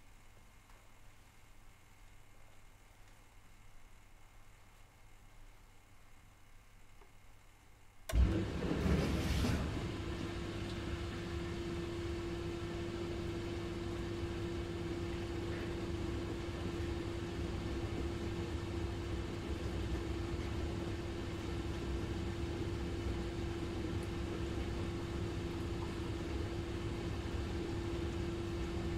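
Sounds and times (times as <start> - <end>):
dishwasher motor hum: 8.0 - 28.9.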